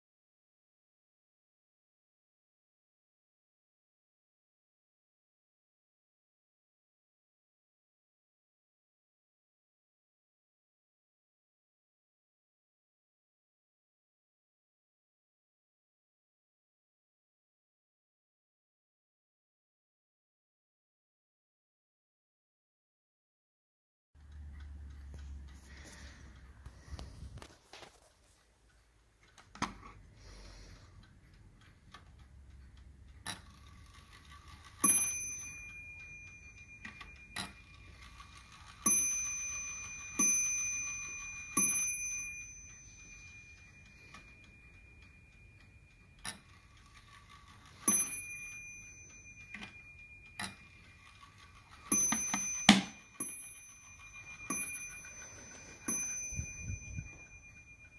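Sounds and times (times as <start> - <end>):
light clicks of clock movement: 24.2 - 35.0, 42.7 - 48.6, 49.3 - 56.2
clock striking: 31.0 - 57.9.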